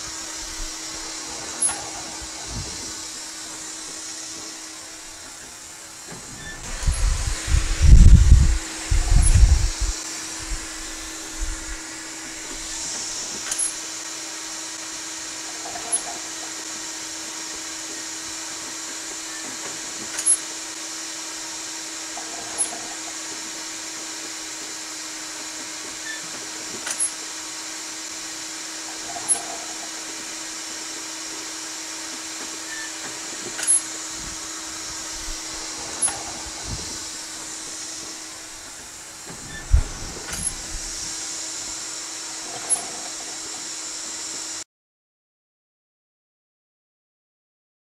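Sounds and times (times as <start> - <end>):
machine hum and air hiss: 0.0 - 44.6
machine clicks: 13.4 - 13.8.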